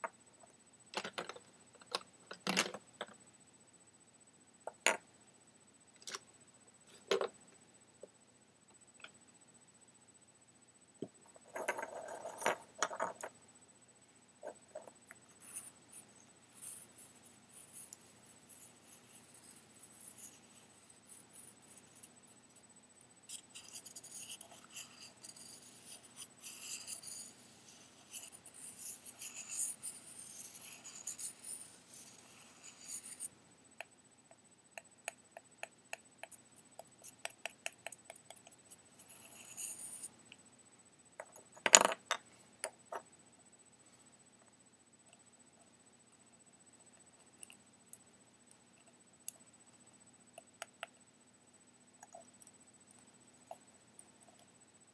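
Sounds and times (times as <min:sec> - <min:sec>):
ornaments rubbing scratchily: 0:23.3 - 0:33.3.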